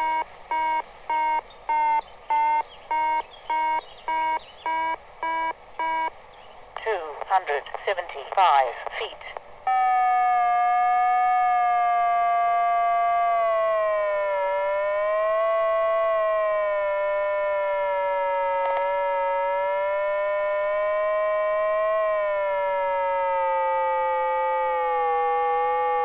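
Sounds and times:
buzzy electronic tone: 9.7 - 26.0.

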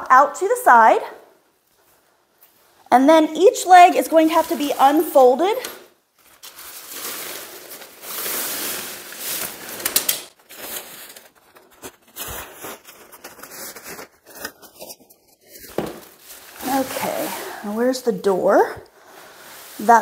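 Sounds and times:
tent fabric rustling and crinkling: 6.1 - 20.0.

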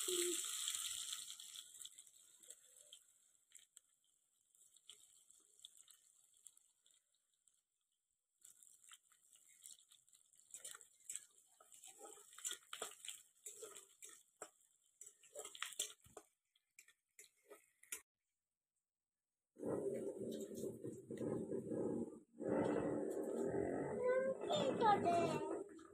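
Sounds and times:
spatula scraping metal wok: 11.6 - 14.4.

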